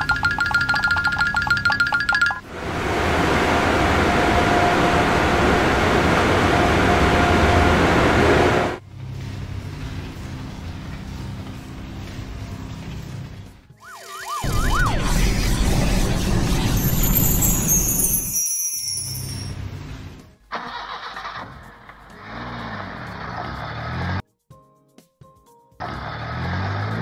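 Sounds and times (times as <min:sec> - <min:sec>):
warbling tone: 0:00.0 - 0:08.8, 0:13.8 - 0:19.5.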